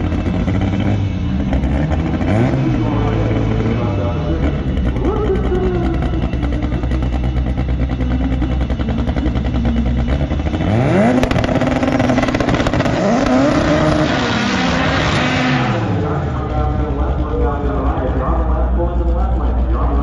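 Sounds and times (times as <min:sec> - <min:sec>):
car engine accelerating hard: 0:00.0 - 0:20.0
drag race car engines running: 0:00.0 - 0:20.0
exhaust crackle: 0:00.0 - 0:20.0.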